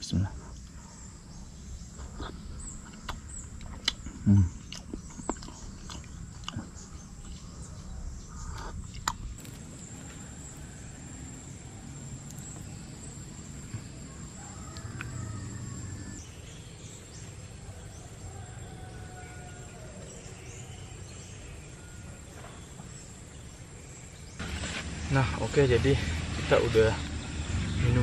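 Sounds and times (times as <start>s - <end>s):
faint bird chirps: 0.0s - 24.4s
high-pitched insect whine: 8.1s - 16.6s.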